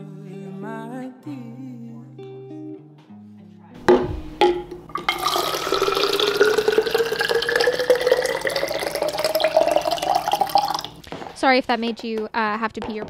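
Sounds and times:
water filling a container: 4.3s - 11.0s.

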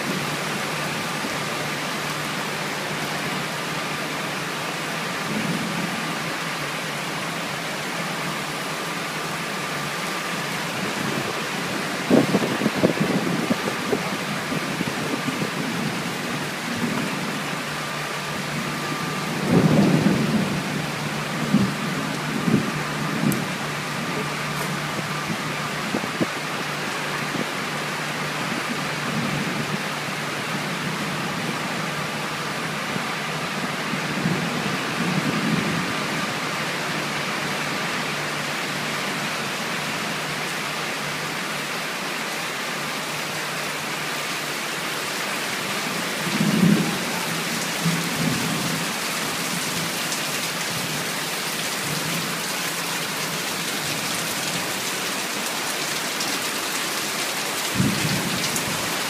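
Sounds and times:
heavy rain on metal roof: 0.0s - 59.0s
low rumbles: 12.0s - 27.5s.

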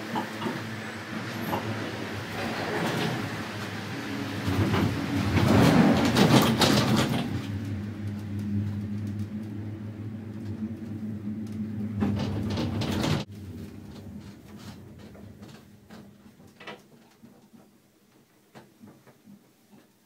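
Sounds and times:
gondola cabin clattering and rattling: 0.0s - 19.0s
low hum of cable car: 0.0s - 19.4s.

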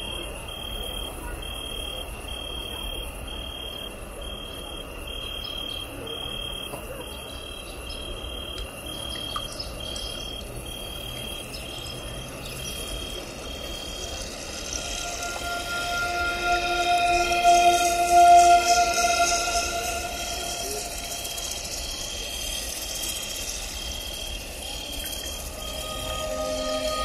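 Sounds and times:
insect chirping: 0.0s - 27.0s
crowd murmur: 12.3s - 27.0s
band holding long notes: 13.1s - 23.6s, 25.0s - 27.0s.

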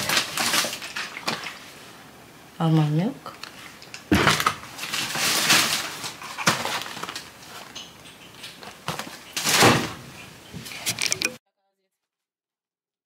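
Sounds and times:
packaging rustling: 0.0s - 1.7s, 3.9s - 10.0s
knocks of groceries: 4.1s - 7.2s, 8.6s - 10.1s.

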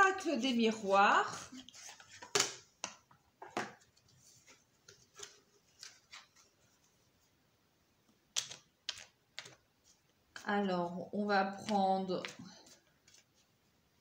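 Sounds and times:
cards being shuffled: 8.3s - 10.4s, 11.6s - 13.6s.

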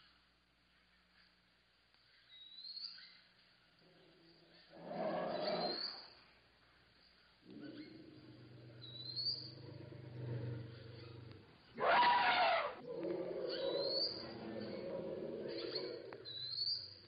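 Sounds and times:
faint bird chirps: 2.0s - 6.3s, 6.9s - 17.0s
elephant calling: 8.7s - 12.9s.

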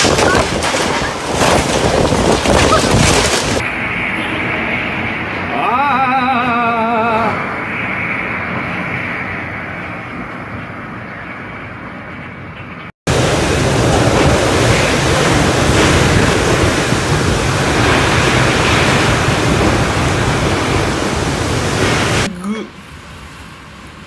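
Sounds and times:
wind rushing across microphone: 0.0s - 3.7s, 13.1s - 22.3s.

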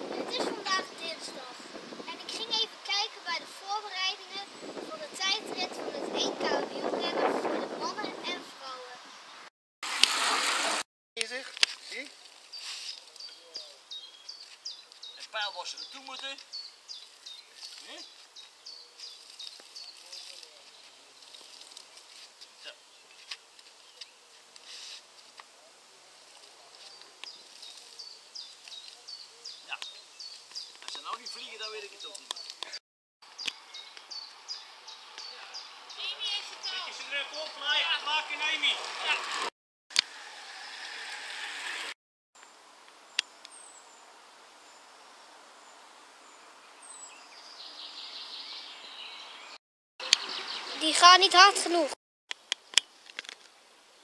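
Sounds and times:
short high hiss: 12.5s - 13.1s, 24.5s - 25.3s
high falling bird chirps: 33.2s - 38.7s.

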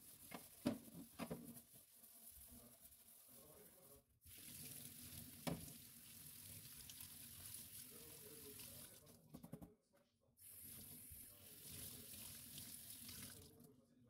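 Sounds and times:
tap running into steel sink: 5.4s - 5.7s.

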